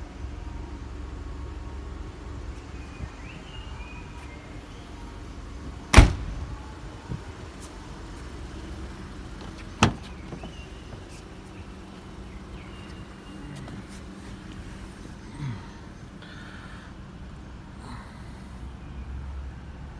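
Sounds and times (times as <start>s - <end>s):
car boot lid slamming shut: 5.9s - 6.4s, 9.8s - 10.6s
car door opening clack: 9.4s - 10.6s.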